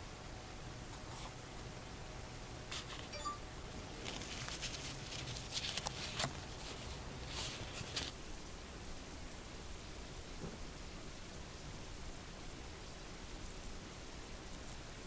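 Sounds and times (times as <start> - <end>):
paper tissue rustling: 2.7 - 3.1, 3.9 - 8.2.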